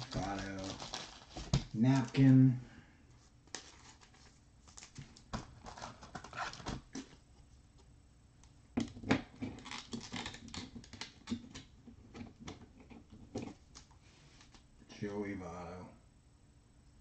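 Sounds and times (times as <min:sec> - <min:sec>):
plastic card sleeve clicks and crinkles: 0:03.5 - 0:07.1, 0:08.8 - 0:11.7.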